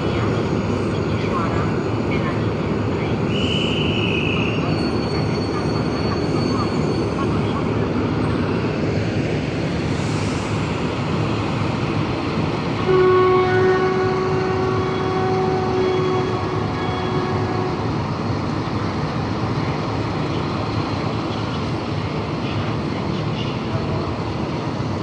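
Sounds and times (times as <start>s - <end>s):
locomotive engine rumble: 0.0s - 25.0s
locomotive horn: 12.8s - 18.0s.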